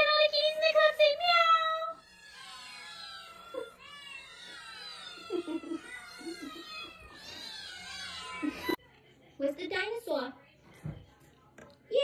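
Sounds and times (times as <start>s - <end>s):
many cats meowing and yowling: 1.6s - 8.8s.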